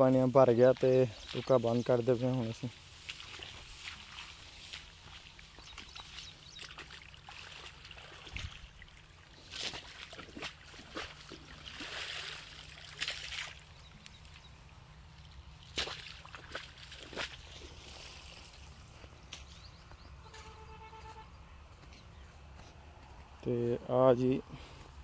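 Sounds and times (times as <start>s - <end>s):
water trickling: 0.4s - 18.8s.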